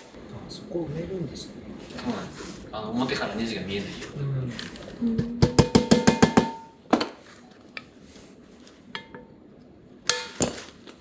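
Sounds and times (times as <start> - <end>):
mallet tapping on metal: 5.2 - 6.8.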